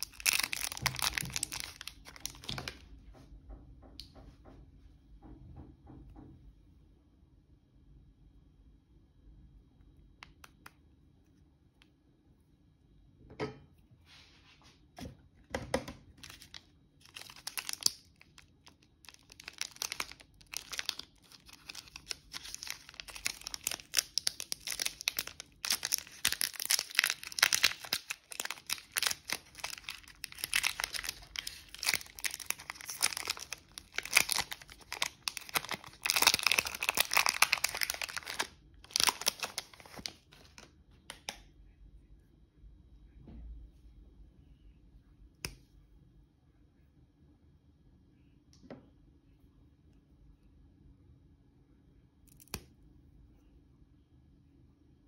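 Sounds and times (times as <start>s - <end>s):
plastic wrapper crinkling and tearing: 0.0s - 2.8s, 16.2s - 41.4s
small crackles: 0.0s - 2.8s, 16.2s - 41.4s.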